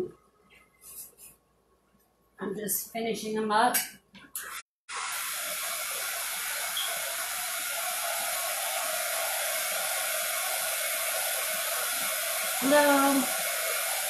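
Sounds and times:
hot-air blower hissing: 4.9 - 14.0.

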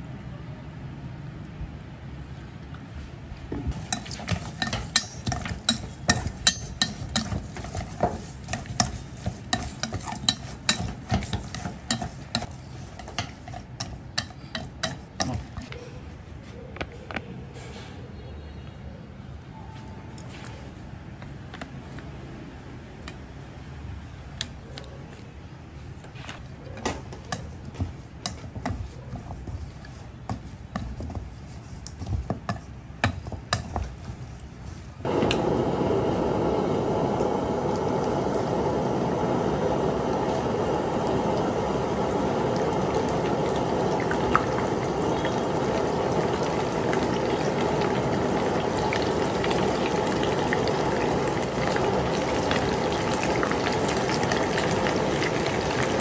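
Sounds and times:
fish deep-frying in oil: 3.7 - 15.5, 33.5 - 56.0
chopsticks tapping steel bowl: 3.8 - 15.7.

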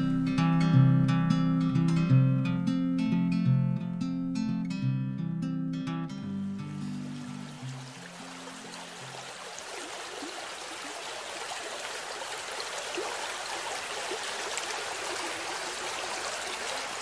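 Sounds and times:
river rushing over boulders: 6.7 - 17.0.

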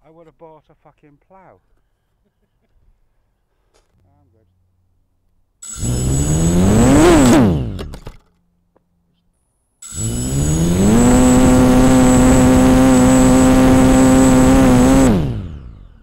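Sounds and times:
drone motors whining: 5.6 - 8.1, 9.8 - 16.0.

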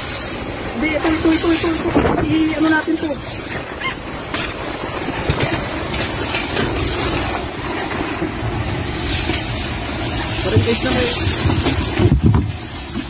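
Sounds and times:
strong wind blowing: 0.0 - 13.0.

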